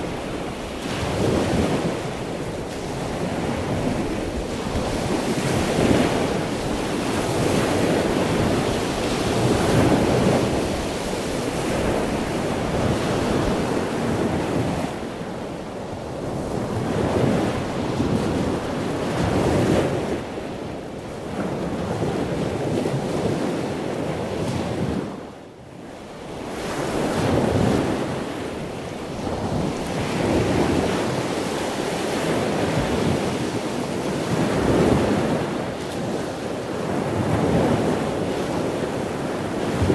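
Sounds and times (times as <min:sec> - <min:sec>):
ocean waves breaking: 0:00.0 - 0:25.2, 0:26.1 - 0:39.9.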